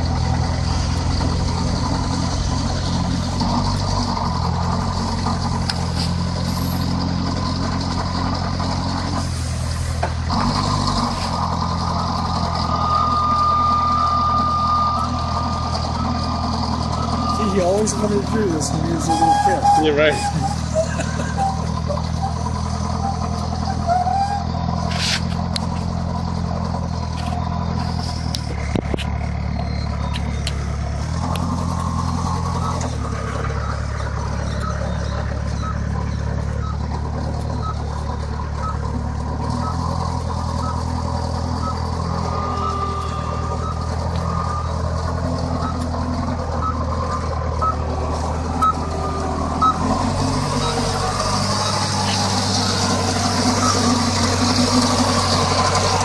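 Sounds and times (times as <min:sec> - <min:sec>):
forklift engine running: 0:00.0 - 0:56.0
reversing alarm beeping: 0:10.7 - 0:24.6, 0:31.8 - 0:38.9, 0:39.5 - 0:56.0.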